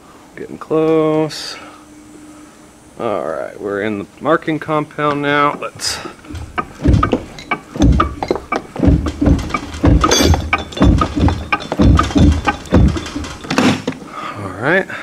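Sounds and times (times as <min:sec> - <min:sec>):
gear teeth clicking and clunking: 0:05.5 - 0:14.0
dull knocks: 0:05.8 - 0:13.9.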